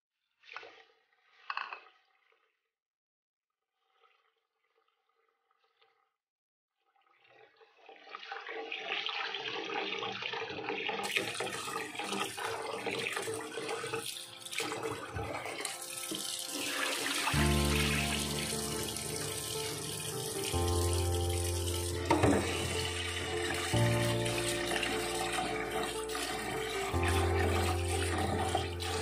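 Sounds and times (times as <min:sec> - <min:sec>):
tap water running into a pot: 0:07.8 - 0:29.0
background music with low bass: 0:17.3 - 0:29.0.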